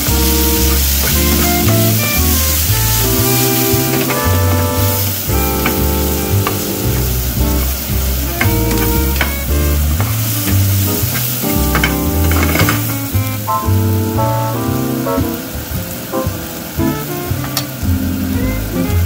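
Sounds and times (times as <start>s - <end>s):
background music with bass: 0.0s - 19.0s
vegetables sizzling in frying pan: 0.0s - 19.0s.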